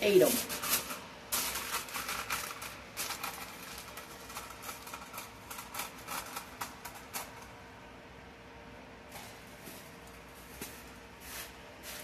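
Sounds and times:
aluminum foil crinkling: 0.0s - 7.6s.

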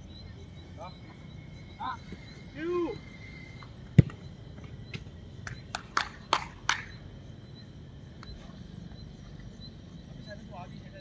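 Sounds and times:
football kicked hard: 4.0s - 4.2s.

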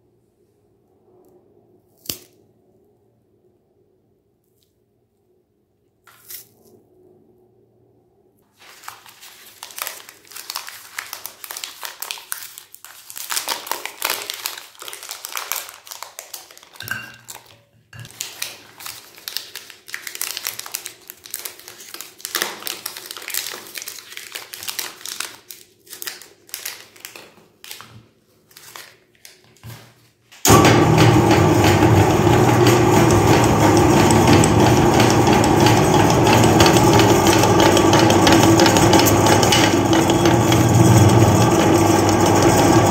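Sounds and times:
candy wrappers crinkling and tearing: 8.6s - 29.8s
electric meat grinder running: 30.5s - 42.9s.

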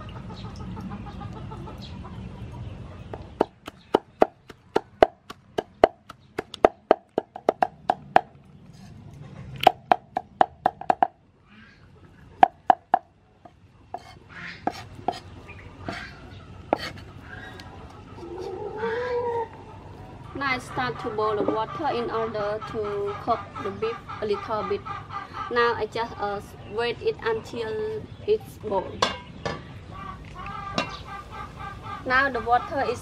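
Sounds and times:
cleaver chopping on wooden block: 3.4s - 8.3s.

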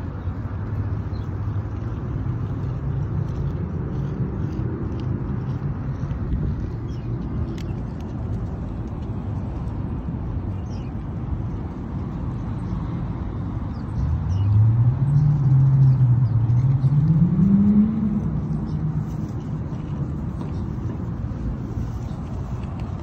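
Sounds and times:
low rumble of traffic: 0.0s - 23.0s
vehicle engine accelerating: 13.6s - 21.0s.

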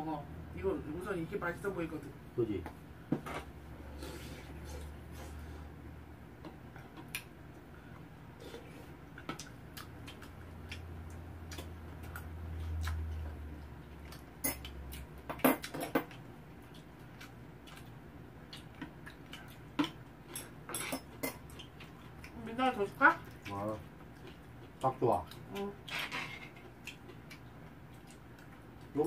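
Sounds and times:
utensils clinking against bowls: 20.3s - 21.5s.

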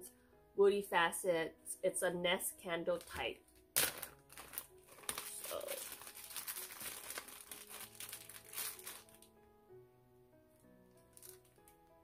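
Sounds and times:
plastic bag crinkling: 3.8s - 9.3s, 11.0s - 11.8s.

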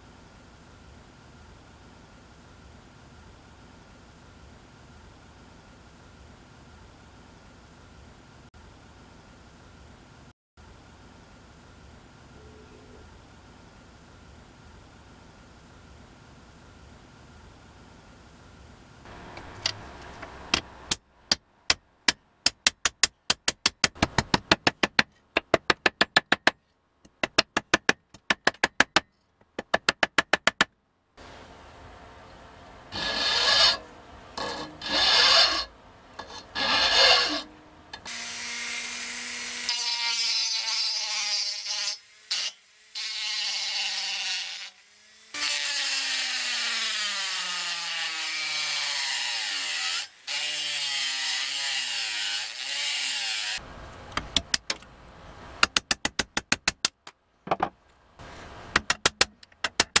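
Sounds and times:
rotary tool grinding: 32.9s - 38.2s.

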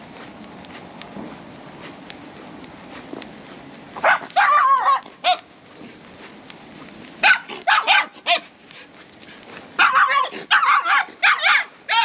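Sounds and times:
small dog barking: 4.0s - 5.4s, 7.2s - 8.5s, 9.8s - 12.0s.

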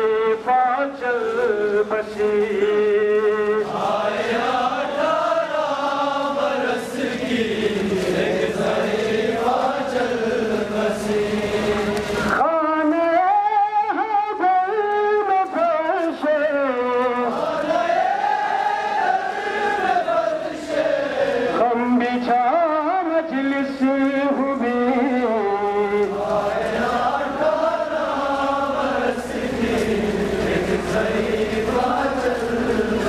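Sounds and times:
man chanting a lament over loudspeakers: 0.0s - 17.7s, 21.4s - 33.0s.

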